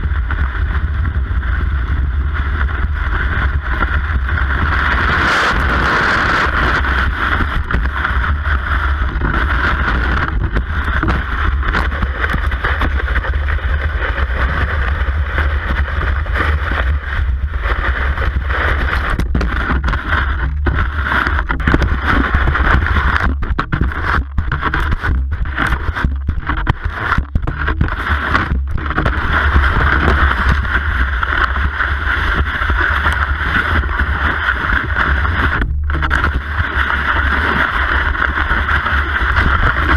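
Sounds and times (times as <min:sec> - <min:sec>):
low rumble: 0:00.0 - 0:39.9.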